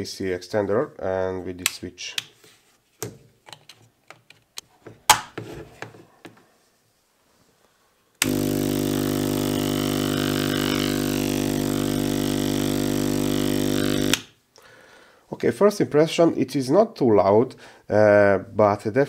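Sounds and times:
air compressor buzzing hum: 8.2s - 14.4s.

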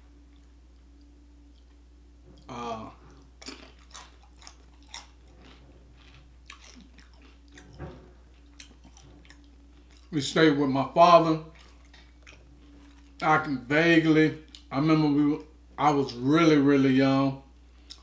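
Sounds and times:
chip crunching: 2.4s - 10.2s.

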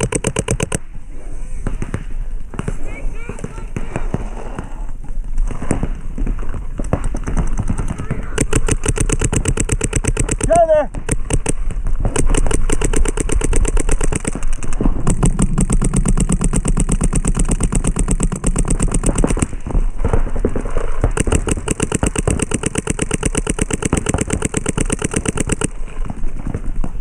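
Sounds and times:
paintball markers firing rapidly: 0.0s - 0.9s, 1.7s - 27.0s.

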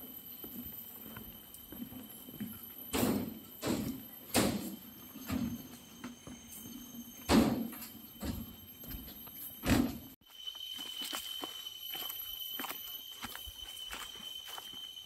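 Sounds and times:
footsteps on trail: 0.0s - 2.9s, 8.4s - 15.0s.

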